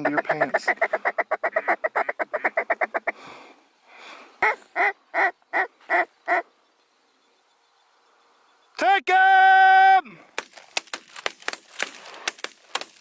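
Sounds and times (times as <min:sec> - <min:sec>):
loud duck call quacks: 0:00.0 - 0:03.2, 0:04.4 - 0:06.4
duck call chattering: 0:00.0 - 0:03.3, 0:04.4 - 0:06.5.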